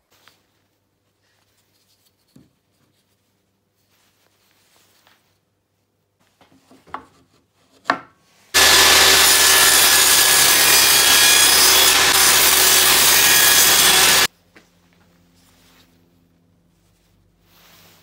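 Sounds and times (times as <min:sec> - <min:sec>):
table saw cutting wood: 0:08.6 - 0:14.3.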